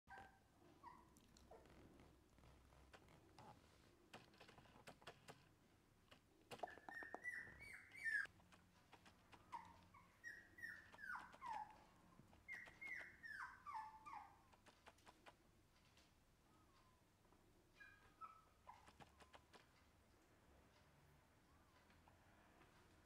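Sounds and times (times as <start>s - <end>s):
puppy whining: 0.1s - 1.8s, 6.5s - 15.1s, 17.7s - 19.7s.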